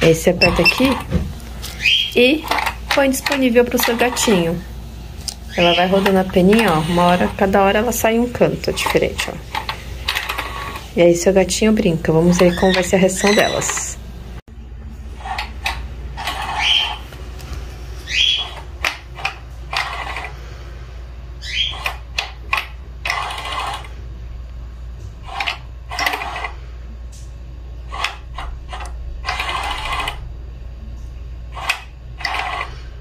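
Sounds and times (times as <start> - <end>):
toy motor humming: 0.4 - 10.9, 12.2 - 14.0, 16.2 - 17.0, 18.0 - 20.4, 21.4 - 24.0, 25.2 - 26.6, 27.8 - 30.2, 31.5 - 32.9.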